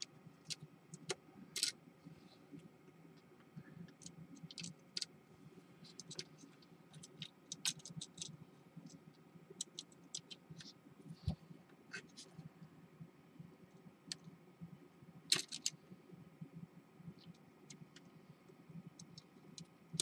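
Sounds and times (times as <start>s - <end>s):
small plastic clicks: 0.5s - 1.8s, 5.8s - 9.0s, 9.6s - 10.8s, 15.3s - 15.8s.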